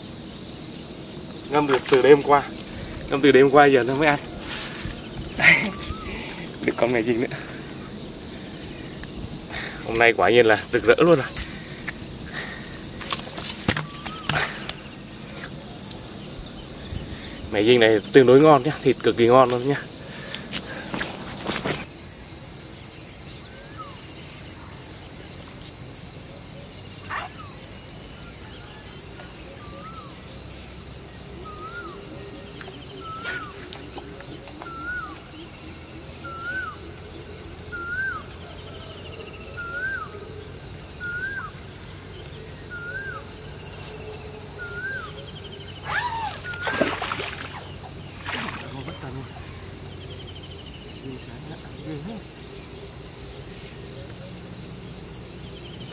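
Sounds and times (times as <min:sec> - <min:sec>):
high-pitched insect drone: 0:00.0 - 0:55.9
bird whistling: 0:34.6 - 0:35.3, 0:41.0 - 0:41.6.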